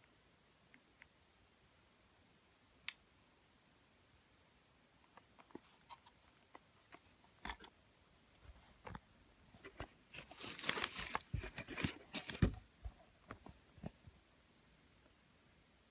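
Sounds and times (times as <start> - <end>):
box crinkling and rattling: 9.6 - 12.7.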